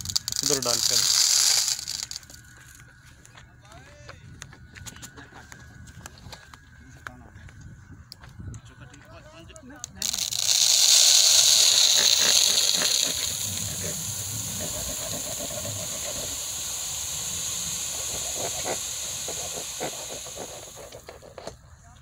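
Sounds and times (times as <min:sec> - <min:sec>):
gravel pouring from wheelbarrow: 0:00.0 - 0:02.3, 0:10.0 - 0:21.1
stones clicking: 0:00.0 - 0:02.4, 0:09.8 - 0:21.6.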